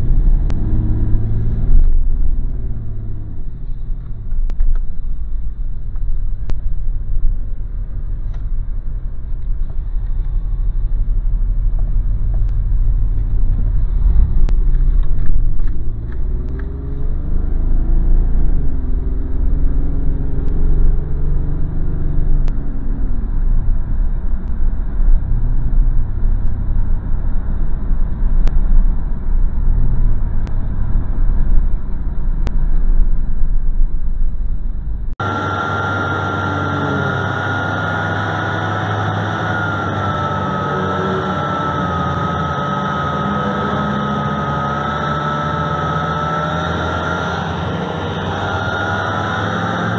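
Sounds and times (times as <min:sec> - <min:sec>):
car road and engine rumble: 0:00.0 - 0:49.9
faint tone rising and falling: 0:34.8 - 0:49.9.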